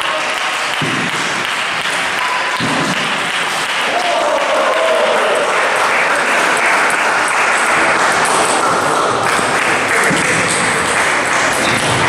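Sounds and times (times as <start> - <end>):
table tennis balls clattering: 0.7 - 3.8, 8.1 - 12.0.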